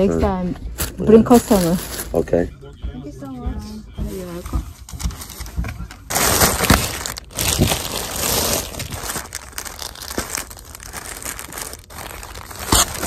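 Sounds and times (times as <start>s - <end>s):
plastic garment bags crinkling: 0.8s - 2.3s, 5.2s - 13.0s.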